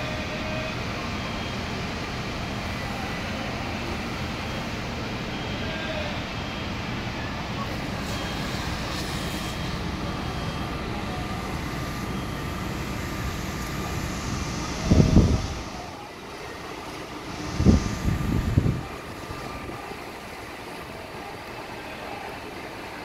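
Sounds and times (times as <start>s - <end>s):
fire engine pump rumbling: 0.0s - 23.0s
low loud buffets: 0.0s - 23.0s
water spraying: 6.2s - 23.0s.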